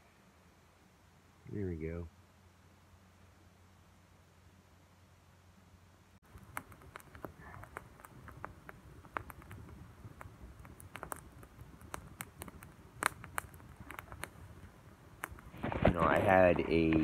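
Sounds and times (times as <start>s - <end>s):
campfire crackling and popping: 6.2s - 17.0s.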